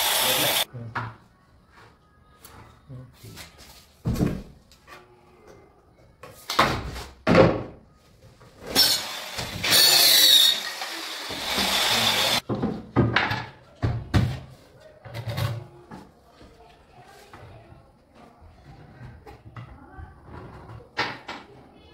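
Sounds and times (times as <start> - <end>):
loud hissing noise: 0.0 - 0.6
wooden knocks and thuds: 12.4 - 14.4.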